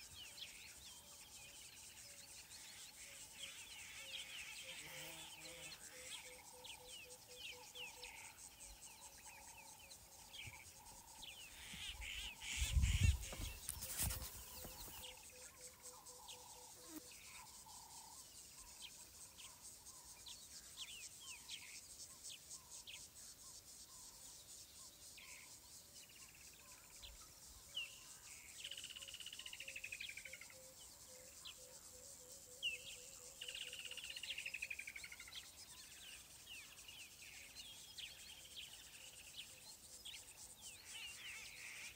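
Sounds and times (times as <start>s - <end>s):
insects trilling: 0.0s - 41.9s
birds calling: 11.4s - 15.3s.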